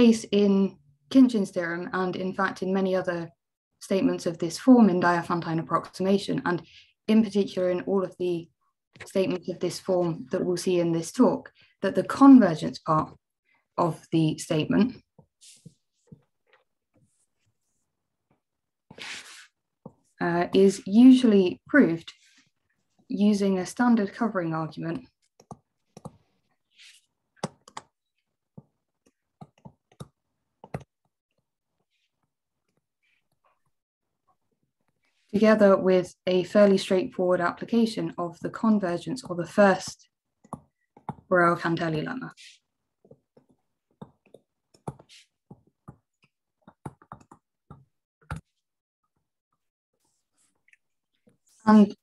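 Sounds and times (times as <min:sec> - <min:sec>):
stylus tapping on screen: 0:25.2 - 0:26.3, 0:27.4 - 0:31.2, 0:40.4 - 0:41.3, 0:43.0 - 0:48.6.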